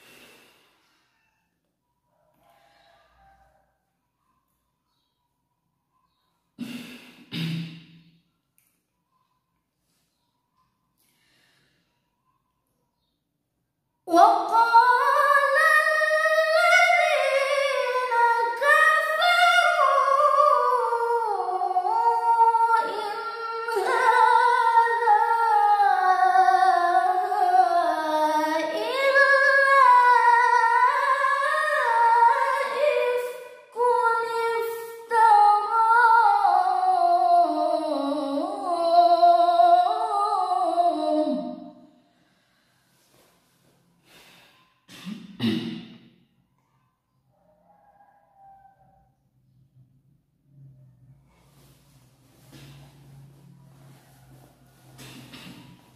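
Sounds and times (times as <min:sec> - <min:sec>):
short breaths: 0:00.0 - 0:01.4, 0:02.4 - 0:03.5, 0:11.0 - 0:12.2, 0:42.0 - 0:44.9
woman reciting melodically: 0:14.1 - 0:41.7.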